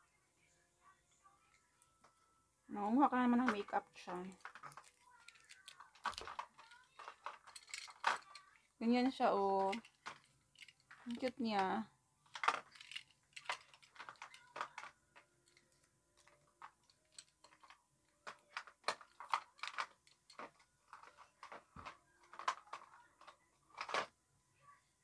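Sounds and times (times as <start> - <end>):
small plastic pieces clicking: 3.5 - 8.5, 12.3 - 24.1.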